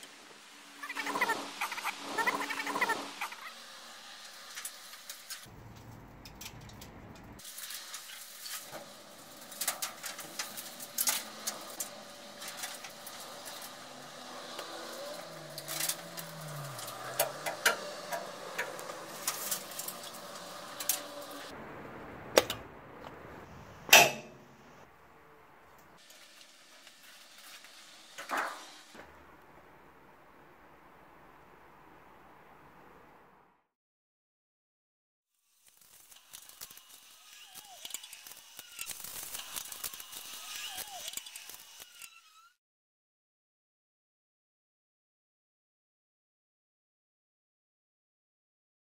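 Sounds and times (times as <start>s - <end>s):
metal clanks and knocks: 23.9s - 24.4s.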